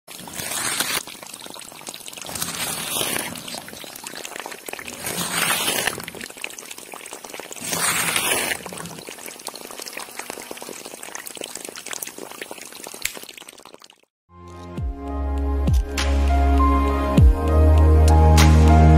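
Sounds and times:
thin stream of water pouring: 0.1 - 14.1.

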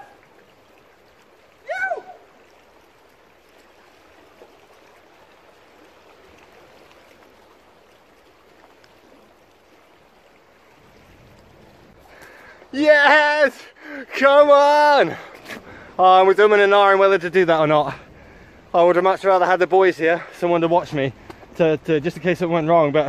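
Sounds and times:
water lapping against rocks: 0.0 - 23.0
short high cry: 1.6 - 2.3.

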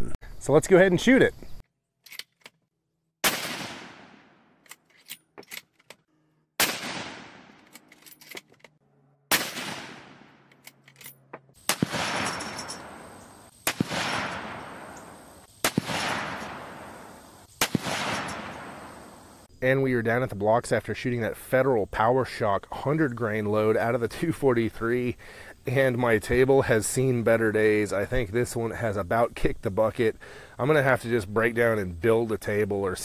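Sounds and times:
rifle shots with echo: 3.2 - 4.5, 6.6 - 7.6, 9.3 - 10.4, 11.6 - 19.1.

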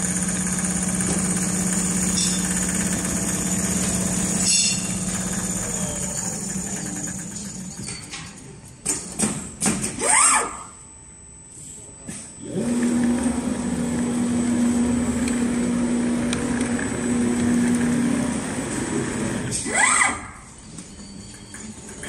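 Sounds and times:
sewing machine humming: 0.0 - 8.1, 12.4 - 19.5
sewing machine whine: 0.0 - 8.5, 12.4 - 22.0.

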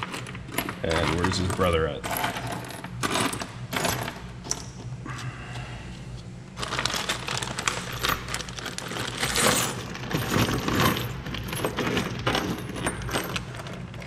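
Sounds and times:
plastic bag crinkling: 6.6 - 11.5
metal bolts and nuts clinking: 6.9 - 14.0.

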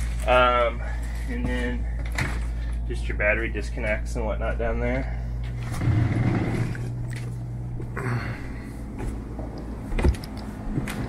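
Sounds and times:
low hum: 0.0 - 11.0
footsteps on boat steps: 8.9 - 11.0.

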